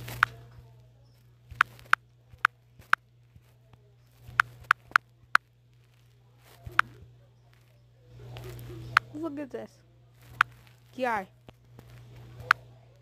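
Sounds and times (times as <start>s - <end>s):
steady low hum: 0.0s - 13.0s
fingertip taps on touchscreen: 1.5s - 3.5s, 4.3s - 5.4s, 10.3s - 10.7s.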